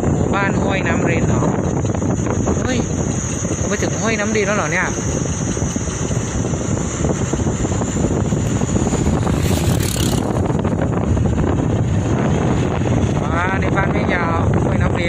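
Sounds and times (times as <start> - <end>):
vehicle rumbling on the move: 0.0 - 15.0
wind buffeting microphone: 0.0 - 15.0
rush of air: 5.1 - 13.4.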